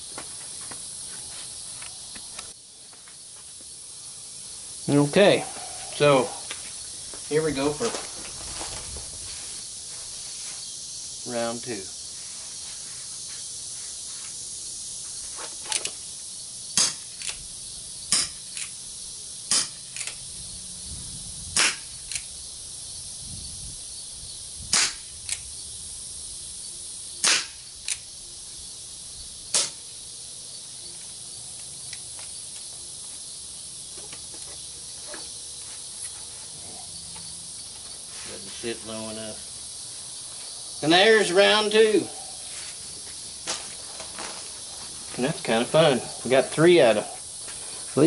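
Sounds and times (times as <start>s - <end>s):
high insect hiss: 0.0s - 48.0s
air pistol pops: 16.8s - 17.4s, 18.1s - 18.7s, 19.5s - 20.2s, 21.6s - 22.3s, 24.7s - 25.4s, 27.2s - 28.0s, 29.5s - 29.8s.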